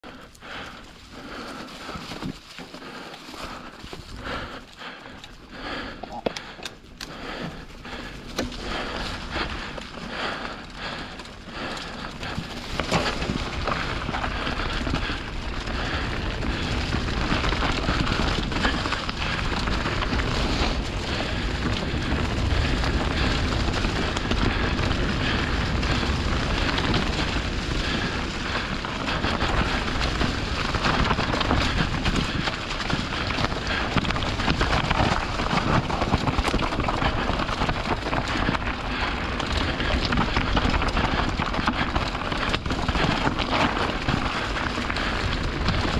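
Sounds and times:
tyres crunching over leaves and stones: 0:00.0 - 0:05.5, 0:07.3 - 0:45.9
bike clattering over rocks: 0:06.2 - 0:45.9.

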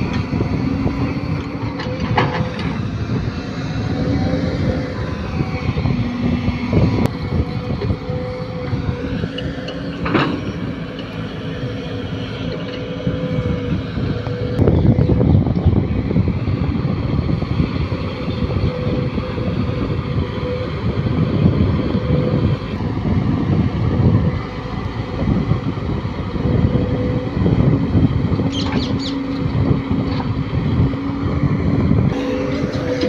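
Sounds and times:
excavator digging: 0:00.0 - 0:33.0
steady whine: 0:30.6 - 0:33.0.

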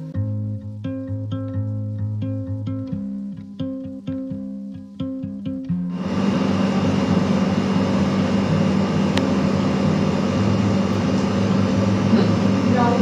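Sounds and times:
air conditioner humming: 0:05.9 - 0:13.0.

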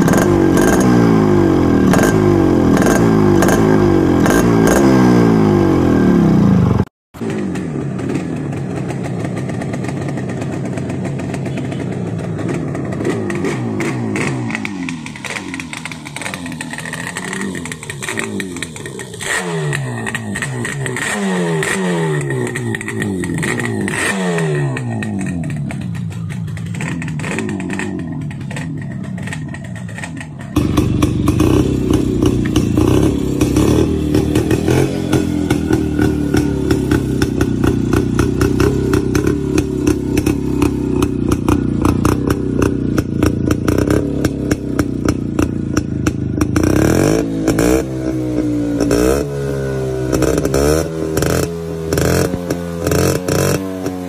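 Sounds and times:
single-cylinder motorcycle engine running: 0:00.0 - 0:54.0
two-stroke motorcycle engine revving: 0:00.0 - 0:54.0.

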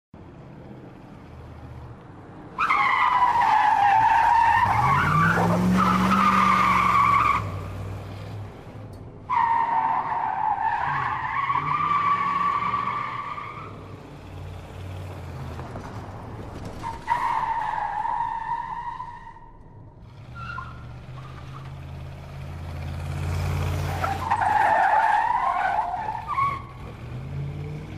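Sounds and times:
car engine rumbling and revving: 0:00.2 - 0:27.9
tyres screeching: 0:23.6 - 0:26.9.

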